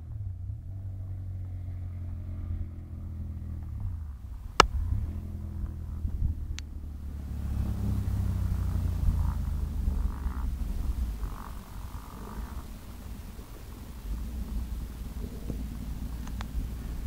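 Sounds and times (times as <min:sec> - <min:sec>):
motorcycle engine passing: 0:00.0 - 0:17.0
sharp crack: 0:04.4 - 0:05.3.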